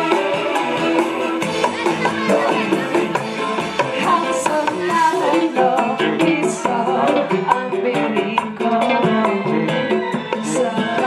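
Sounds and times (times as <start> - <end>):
upbeat dance music with singer: 0.0 - 11.0.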